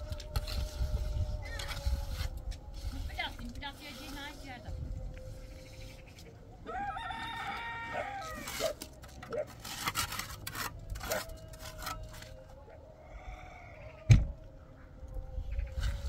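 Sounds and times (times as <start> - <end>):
rooster crowing: 6.6 - 8.8, 12.8 - 14.4.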